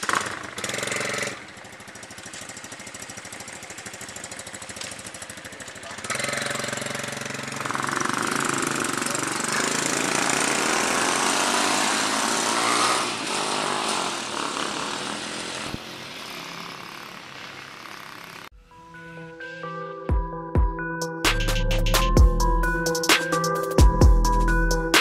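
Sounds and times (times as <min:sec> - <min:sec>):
small motorbike engines revving: 0:00.0 - 0:18.5.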